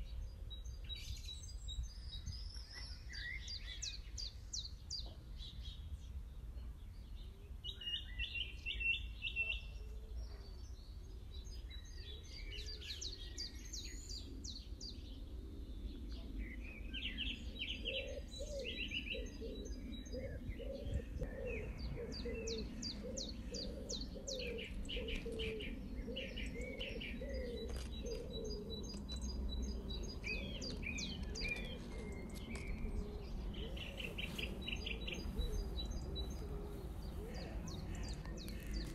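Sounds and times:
songbirds chirping and trilling: 0.0 - 38.9
lower bird call: 15.8 - 38.9.

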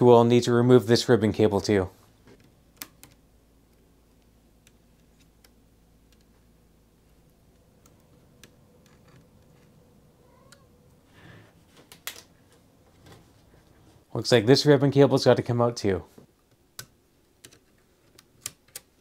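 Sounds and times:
small clicks of plastic parts: 16.4 - 18.9.

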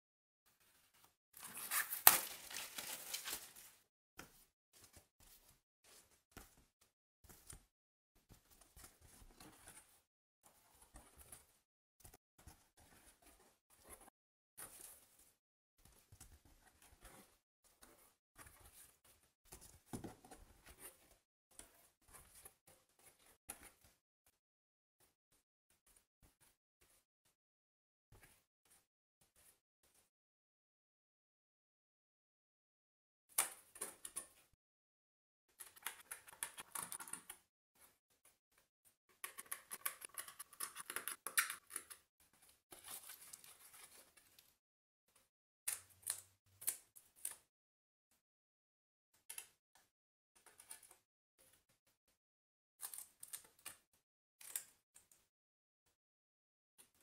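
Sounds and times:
paper sheets rustling and scraping: 0.6 - 3.8
paper pieces clicking and crackling: 39.2 - 42.0.

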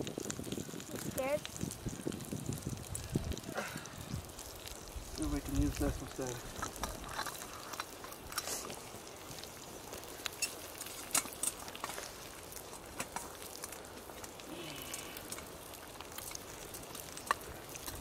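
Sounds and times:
bacon sizzling in a pan: 0.0 - 18.0
fat popping: 6.3 - 8.9.

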